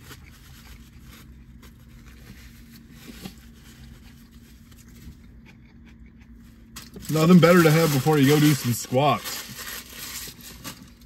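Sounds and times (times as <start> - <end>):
soft chewing: 0.0 - 7.0.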